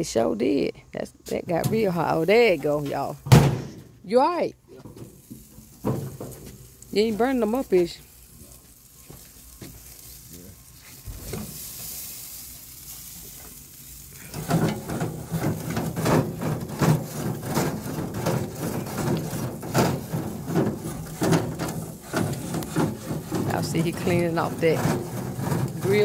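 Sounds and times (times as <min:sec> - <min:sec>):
faint sizzling hiss: 0:00.0 - 0:26.0
grill brush scraping grates: 0:04.8 - 0:26.0.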